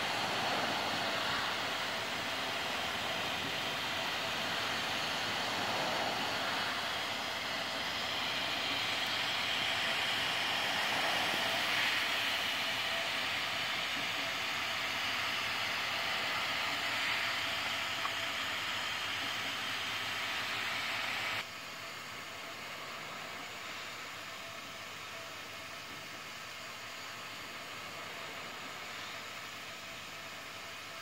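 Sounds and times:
printer fans and motors whirring: 0.0s - 31.0s.

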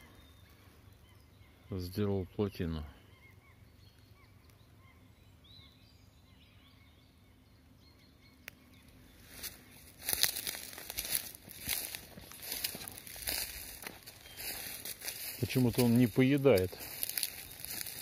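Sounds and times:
faint bird chirps: 0.0s - 18.0s
footsteps crunching dry leaves: 9.1s - 18.0s.

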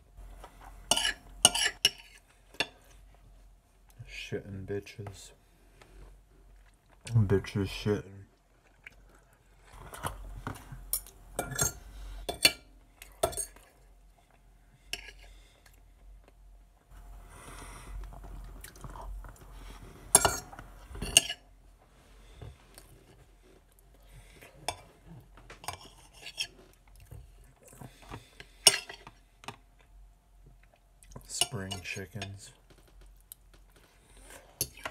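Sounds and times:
person chewing: 18.0s - 20.6s.

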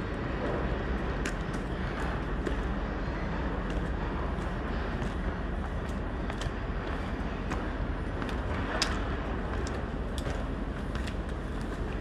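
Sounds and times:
distant city traffic rumble: 0.0s - 12.0s
footsteps on stone steps: 0.3s - 12.0s.

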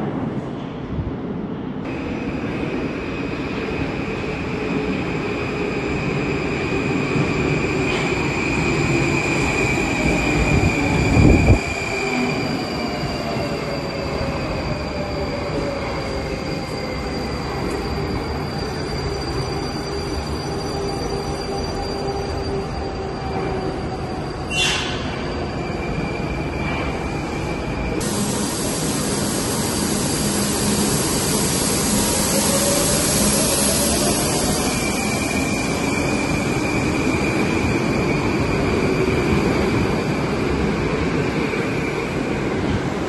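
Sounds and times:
train wheels rumbling on rail: 0.0s - 43.0s.

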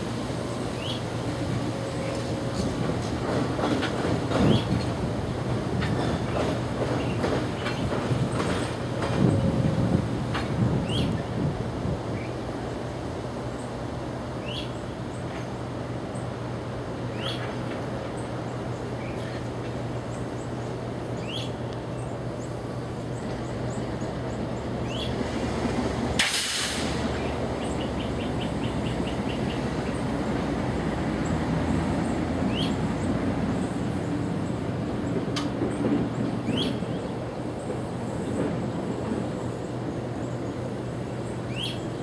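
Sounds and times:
diesel locomotive engine drone: 0.0s - 42.0s
loud hiss: 26.2s - 27.2s
bird chirping: 41.3s - 42.0s.

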